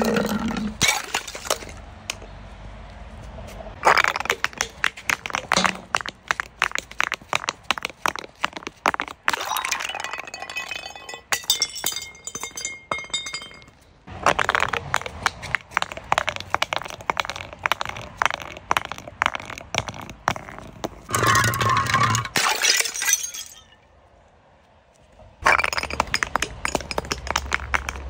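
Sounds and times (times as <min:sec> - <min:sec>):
glass clinking: 0:09.5 - 0:13.8.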